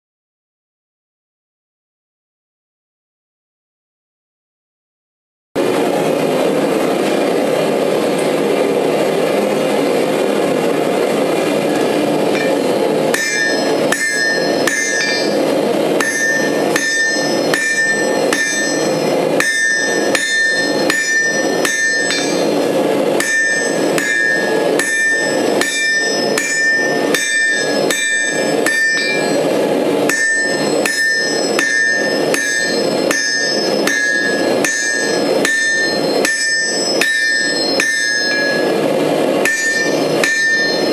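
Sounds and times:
steady rushing noise: 5.6s - 40.9s
hammer striking steel on anvil: 11.7s - 40.9s
metallic anvil ring: 12.3s - 40.9s.

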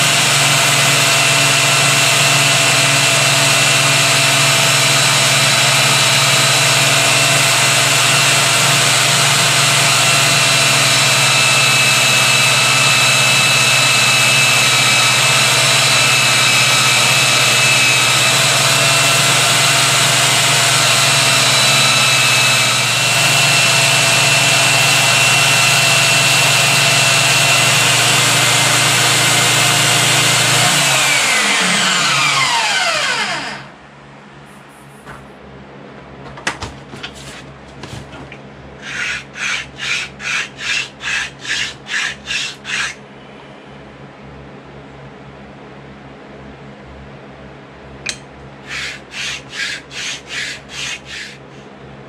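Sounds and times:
bandsaw motor whining: 0.0s - 33.8s, 38.8s - 43.0s, 48.6s - 51.6s.

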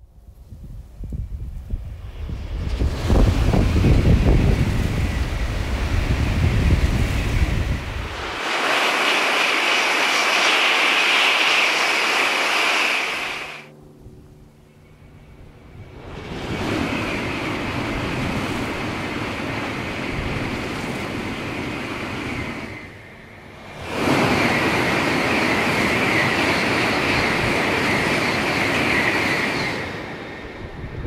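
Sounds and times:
high-speed train rushing past: 1.0s - 13.7s, 15.1s - 31.0s
train hiss: 2.0s - 13.7s.

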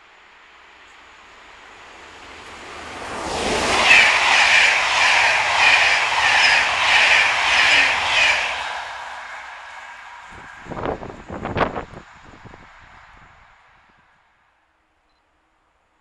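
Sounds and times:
train passing at speed: 0.0s - 16.0s
train wheels beating on rails: 0.4s - 12.6s.

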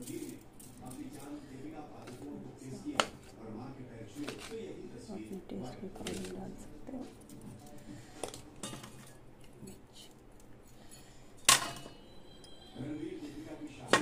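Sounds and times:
steel utensils clinking: 10.6s - 14.0s.

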